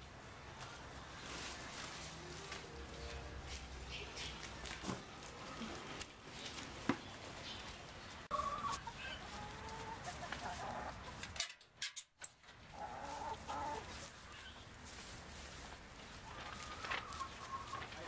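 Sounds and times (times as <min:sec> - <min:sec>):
chickens clucking: 0:07.4 - 0:11.4, 0:12.6 - 0:14.6, 0:15.6 - 0:18.0.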